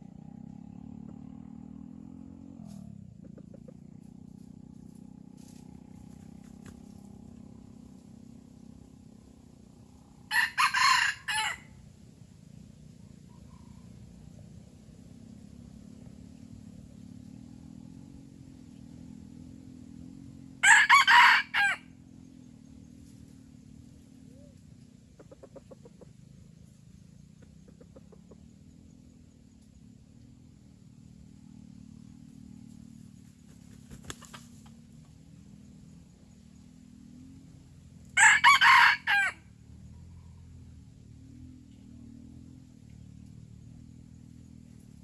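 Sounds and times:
soft clucks: 0:03.2 - 0:03.9, 0:25.1 - 0:26.2, 0:27.3 - 0:28.6
rooster crowing: 0:10.2 - 0:11.8, 0:20.6 - 0:22.0, 0:38.2 - 0:39.5.

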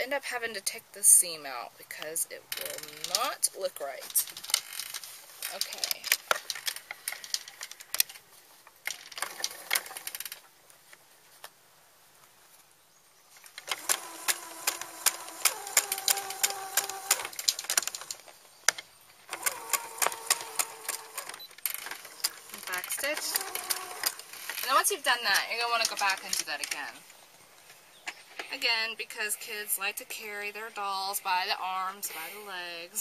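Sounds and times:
sewing machine stitching: 0:13.6 - 0:18.1, 0:19.3 - 0:26.9.

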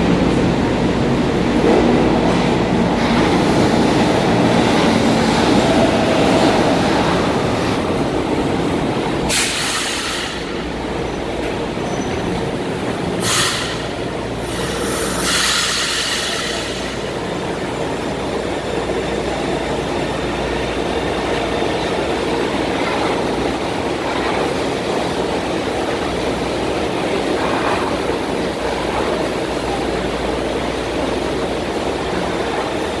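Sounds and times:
subway train rumble: 0:00.0 - 0:33.0
high hissing train screeches: 0:09.3 - 0:10.6, 0:13.2 - 0:17.1.

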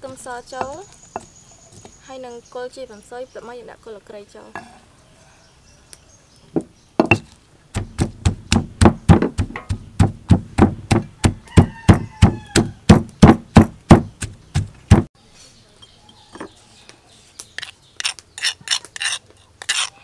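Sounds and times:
stone pestle pounding in mortar: 0:07.0 - 0:15.1.

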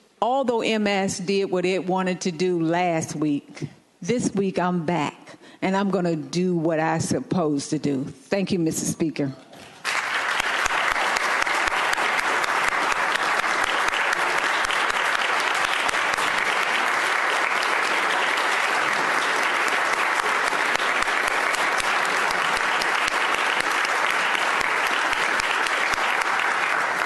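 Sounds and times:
crowd applauding: 0:09.8 - 0:27.0.

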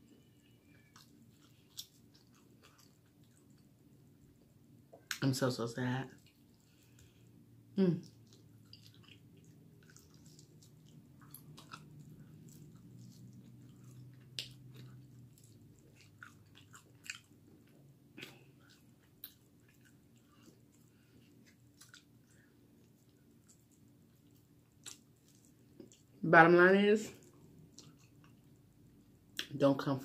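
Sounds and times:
chewing and biting: 0:00.2 - 0:04.4, 0:08.0 - 0:26.1, 0:27.2 - 0:28.6.

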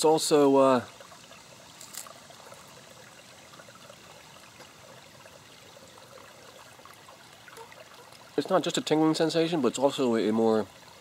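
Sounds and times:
stream trickling over rocks: 0:00.0 - 0:11.0.

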